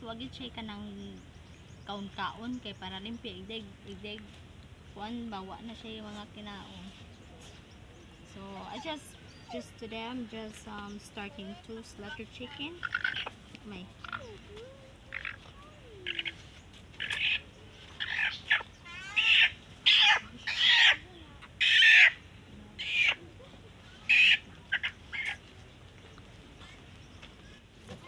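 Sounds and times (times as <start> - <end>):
chicken squawking: 12.8 - 13.4, 15.1 - 22.2, 22.8 - 25.4.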